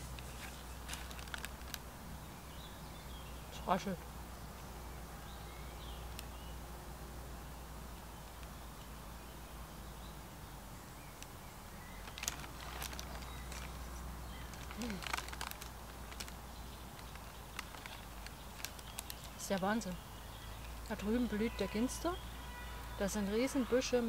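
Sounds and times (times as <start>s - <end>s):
rustling: 0.0s - 1.9s, 11.9s - 19.9s
sharp crackles: 0.0s - 1.9s, 11.1s - 20.0s.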